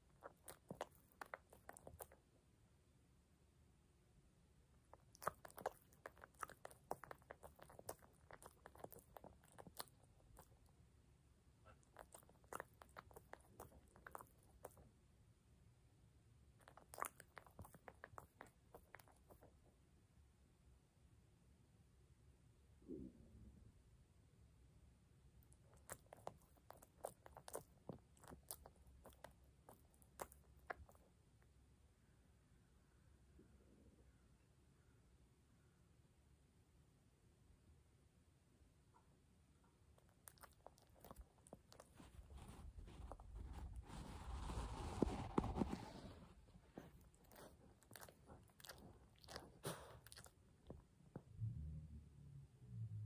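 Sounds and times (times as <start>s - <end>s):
puppy licking its lips: 0.0s - 2.2s, 4.9s - 10.8s, 11.6s - 14.9s, 16.6s - 19.7s, 25.4s - 31.1s, 40.0s - 51.2s.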